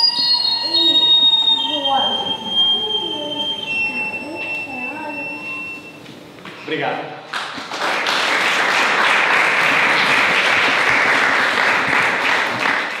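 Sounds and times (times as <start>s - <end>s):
audience applauding: 7.3s - 13.0s.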